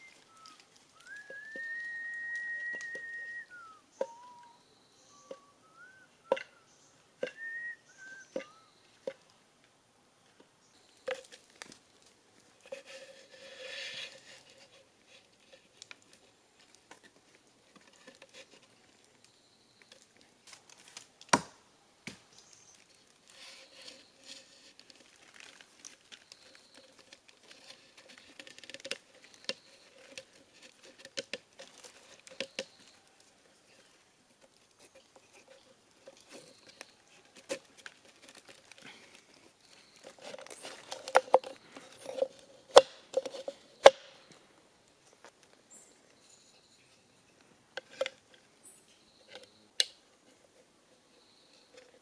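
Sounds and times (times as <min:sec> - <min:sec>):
soft rustling: 0:00.0 - 0:04.4, 0:10.2 - 0:19.3, 0:22.2 - 0:49.4
wooden clicks of bamboo slats: 0:06.2 - 0:06.6, 0:26.8 - 0:32.9, 0:40.0 - 0:44.4, 0:49.3 - 0:50.0.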